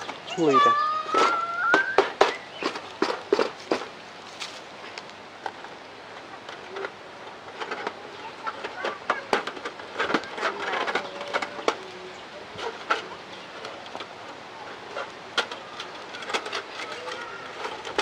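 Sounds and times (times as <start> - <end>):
bird calls: 0.0 - 3.4.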